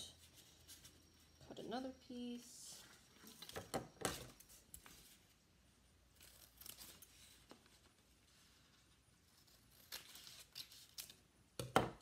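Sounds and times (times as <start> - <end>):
scissors snipping paper: 9.3 - 11.2.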